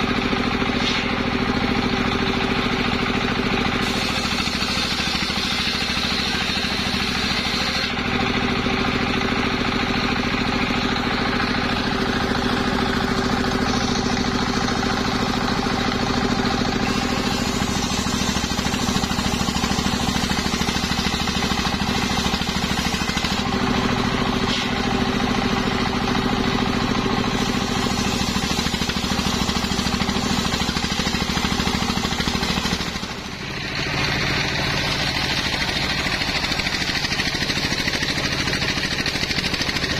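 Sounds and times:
diesel engine running: 0:00.0 - 0:39.9
circular saw ripping log: 0:00.7 - 0:01.2, 0:03.7 - 0:08.2, 0:16.7 - 0:23.6, 0:24.4 - 0:25.0, 0:27.3 - 0:33.3.

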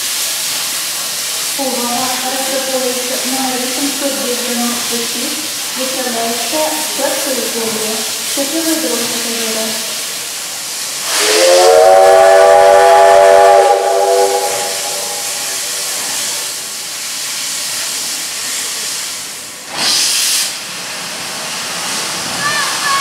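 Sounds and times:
burst of escaping steam: 0:00.0 - 0:23.0
steam locomotive hissing: 0:00.0 - 0:23.0
steam whistle blast: 0:11.1 - 0:16.6.

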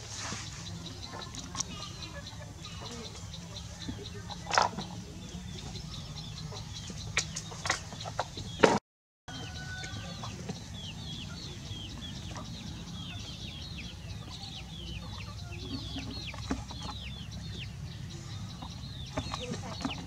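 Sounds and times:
chicks peeping: 0:00.0 - 0:20.0.

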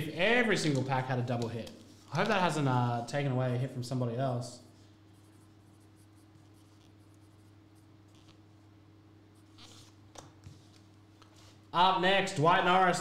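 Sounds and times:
marker scratching on paper: 0:05.1 - 0:08.6, 0:09.4 - 0:11.5.

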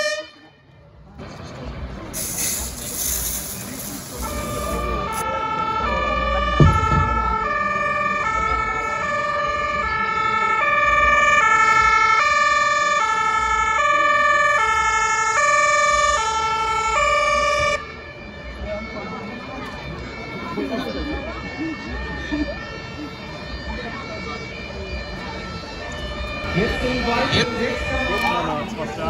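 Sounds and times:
two-tone emergency siren: 0:00.0 - 0:00.7, 0:03.6 - 0:29.0
sharp thump: 0:06.6 - 0:07.3.

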